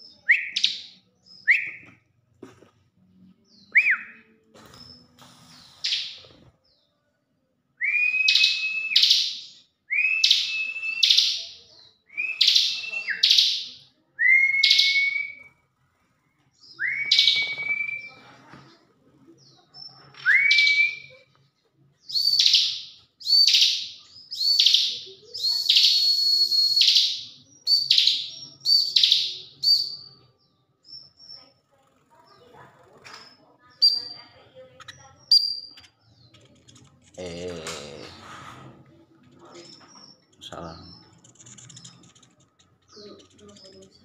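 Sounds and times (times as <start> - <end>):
bird calling with chirping whistles: 7.8 - 15.5, 16.7 - 18.2, 20.2 - 21.2, 22.1 - 30.2, 35.3 - 35.9.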